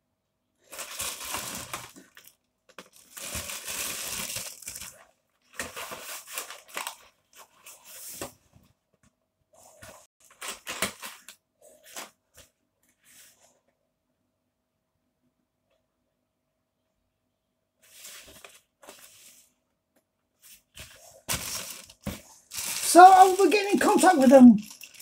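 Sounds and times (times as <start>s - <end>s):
plastic bag crinkling: 0.6s - 7.1s, 21.0s - 25.0s.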